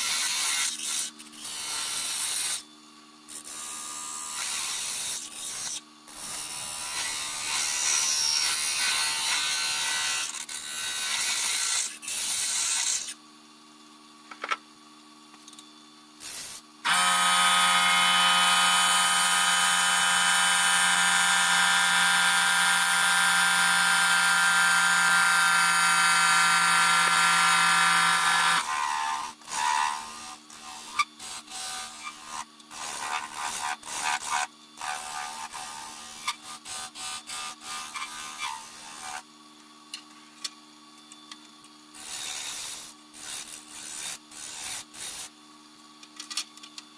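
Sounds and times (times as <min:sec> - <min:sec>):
loud steady buzzing tone: 0:15.5 - 0:31.1
lathe tool cutting wood: 0:16.9 - 0:30.1.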